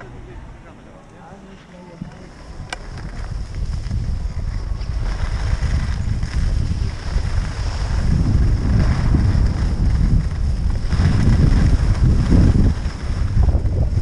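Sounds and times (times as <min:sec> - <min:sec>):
wind buffeting microphone: 0:00.0 - 0:14.0
skis hissing over snow: 0:03.1 - 0:13.8.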